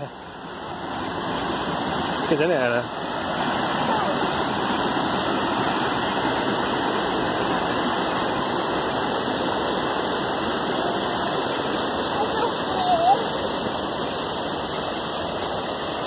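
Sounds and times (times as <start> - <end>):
water rushing over rocks: 0.0 - 16.0.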